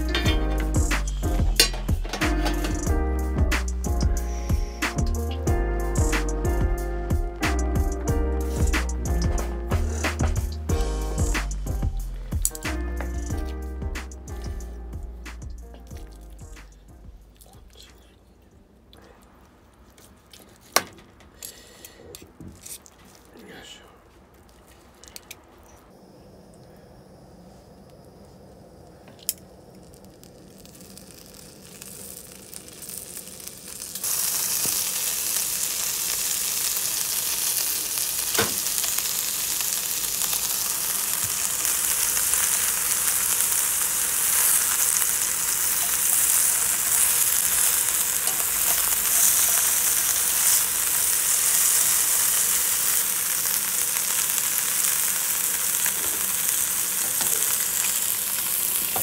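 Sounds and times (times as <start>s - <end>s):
steak sizzling on barbecue: 0.0s - 17.2s, 29.5s - 59.0s.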